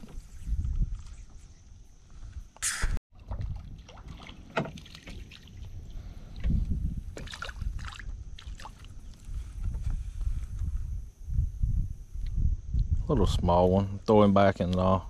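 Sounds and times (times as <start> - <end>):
water splashing and sloshing: 3.1 - 9.4.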